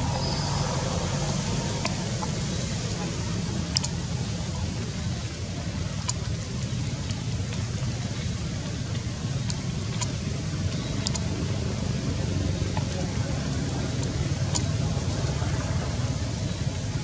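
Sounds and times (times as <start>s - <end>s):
faint high chirps: 0.0s - 1.1s
low outdoor rumble: 0.0s - 17.0s.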